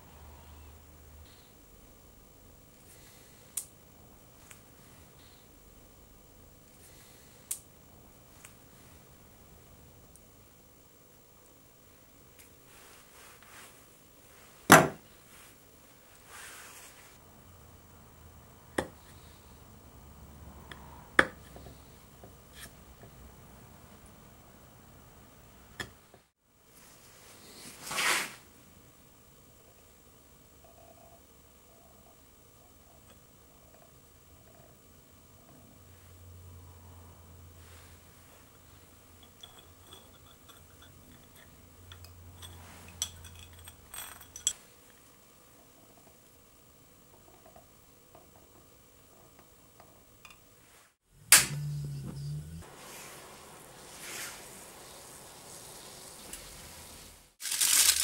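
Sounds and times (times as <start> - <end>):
low steady hum: 0.0 - 27.8, 28.4 - 58.0
tool clinking against glass bottle: 39.2 - 44.6.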